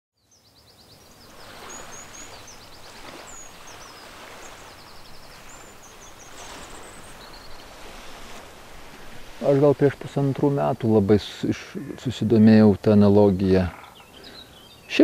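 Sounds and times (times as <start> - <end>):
songbirds calling: 0.2 - 15.0
wind rushing: 1.2 - 10.6.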